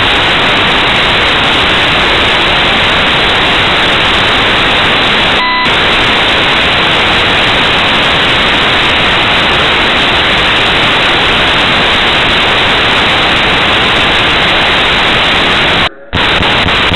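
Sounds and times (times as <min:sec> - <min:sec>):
loud static hiss: 0:00.0 - 0:16.9
brief high tone: 0:15.8 - 0:16.4.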